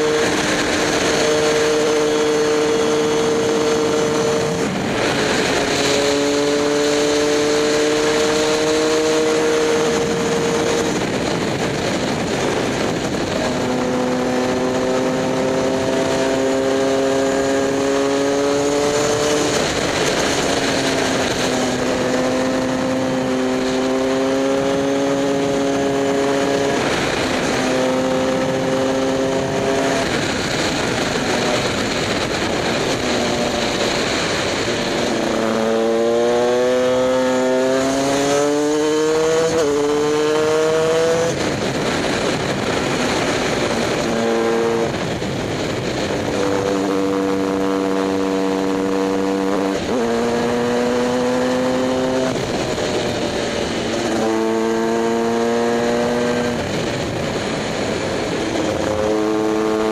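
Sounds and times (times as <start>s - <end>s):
two-stroke motorbike engine: 0.0s - 59.9s
wind rushing: 0.0s - 59.9s.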